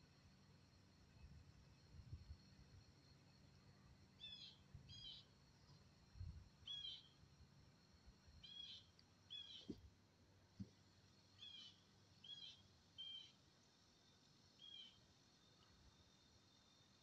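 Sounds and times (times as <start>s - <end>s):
bird chirping faintly: 4.1s - 5.4s, 6.6s - 7.2s, 8.3s - 9.9s, 11.2s - 13.5s, 14.5s - 15.9s.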